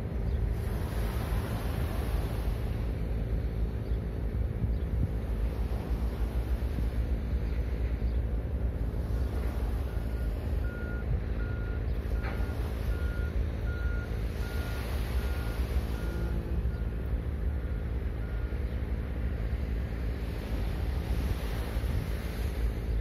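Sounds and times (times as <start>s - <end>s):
wind and surf rumble: 0.0s - 23.0s
vehicle reversing alarm beeping: 9.8s - 19.0s.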